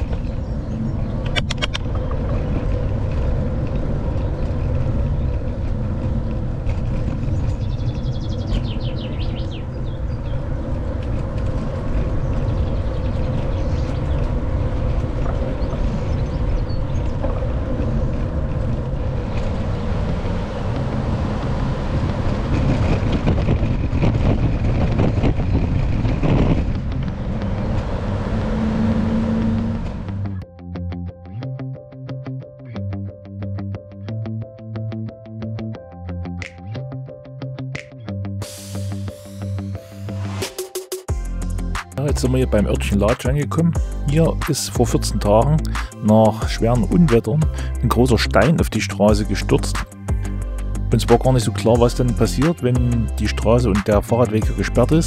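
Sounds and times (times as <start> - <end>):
wind on microphone: 0.0 - 30.3
bike rolling noise: 0.0 - 30.5, 41.1 - 55.0.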